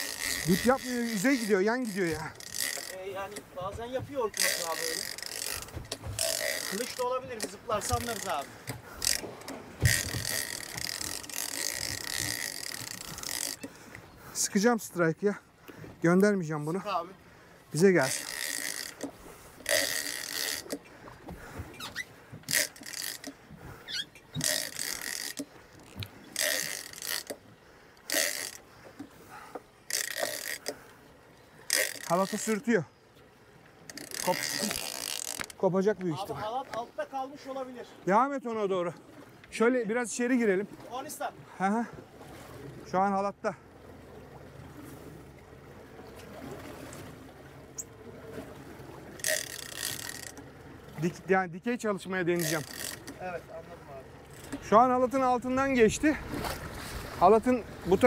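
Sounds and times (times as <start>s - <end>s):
fishing reel drag rasping: 0.0s - 3.5s, 4.2s - 13.8s, 18.0s - 20.9s, 21.7s - 27.4s, 28.0s - 30.9s, 31.6s - 32.7s, 33.8s - 35.6s, 49.1s - 50.5s, 52.3s - 53.2s
water wash: 0.0s - 15.4s
outboard motor running: 0.0s - 37.8s, 40.6s - 51.3s, 52.0s - 58.0s.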